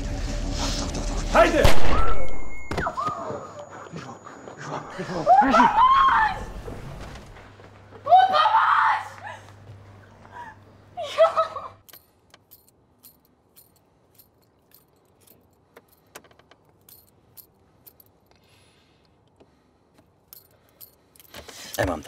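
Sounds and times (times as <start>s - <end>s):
woman screaming for help: 5.1s - 6.5s, 8.0s - 9.4s.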